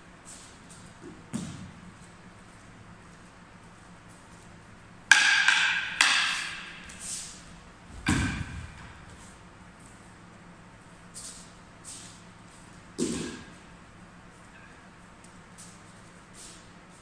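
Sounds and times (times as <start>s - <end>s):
wooden sticks clacking: 5.1s - 7.4s.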